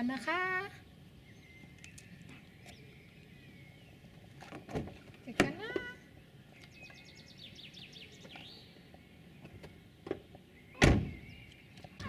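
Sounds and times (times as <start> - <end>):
bird singing a trill: 0.0 - 12.0
car door slamming: 10.8 - 11.3.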